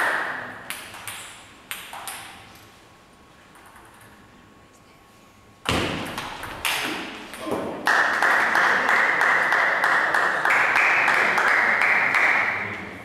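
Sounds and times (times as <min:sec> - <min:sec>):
spectators clapping: 0:07.8 - 0:12.9.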